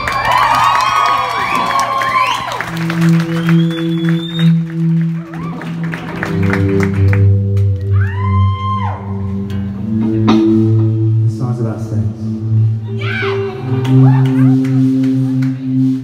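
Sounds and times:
people clapping: 0.0s - 8.4s, 13.7s - 15.9s
live band held chords: 1.4s - 16.0s.

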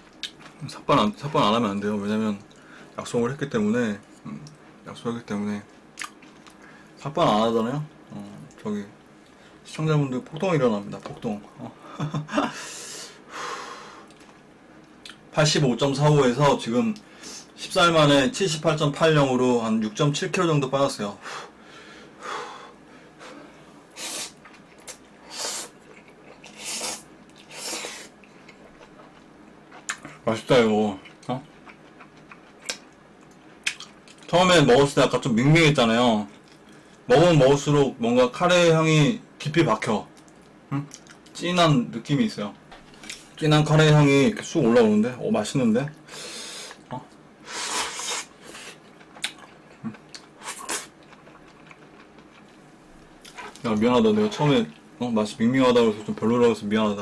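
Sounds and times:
chewing with small clicks: 6.0s - 6.6s, 25.8s - 26.6s, 28.2s - 30.2s, 31.0s - 34.4s, 36.3s - 37.0s, 40.1s - 41.4s, 48.8s - 53.8s
man slurping noodles: 26.4s - 28.1s.

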